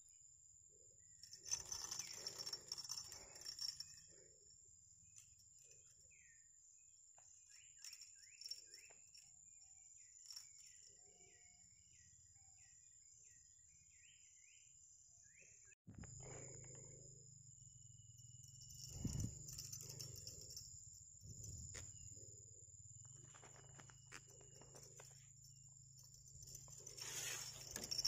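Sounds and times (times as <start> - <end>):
bird chirping: 5.0 - 28.0
high-pitched insect drone: 16.2 - 28.0.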